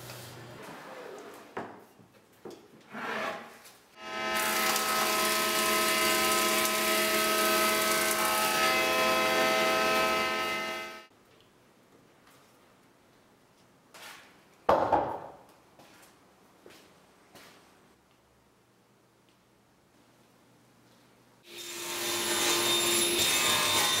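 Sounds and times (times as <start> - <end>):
thickness planer whine: 4.0 - 11.1.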